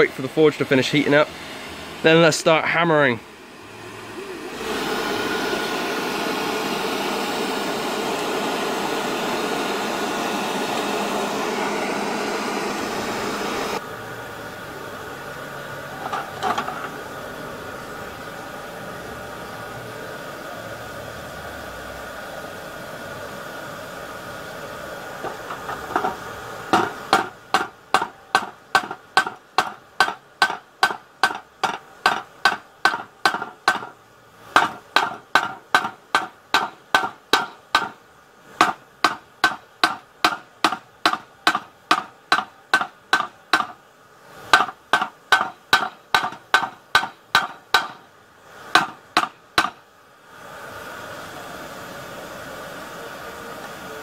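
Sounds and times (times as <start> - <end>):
hammer striking metal on anvil: 26.7 - 33.9, 34.6 - 38.0, 38.6 - 43.8, 44.5 - 48.0, 48.7 - 49.8.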